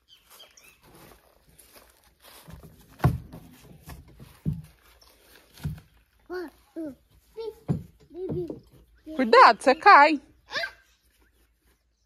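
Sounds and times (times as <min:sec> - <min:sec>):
knocks on plastic wheelbarrow: 0:03.0 - 0:04.7, 0:07.6 - 0:08.6.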